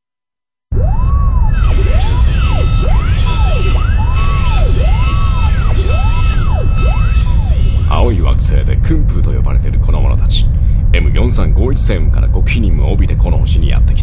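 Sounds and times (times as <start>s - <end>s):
pulsing high tone: 0.7s - 8.4s
siren wails rising and falling: 0.7s - 8.4s
heavy rumble: 0.7s - 14.0s.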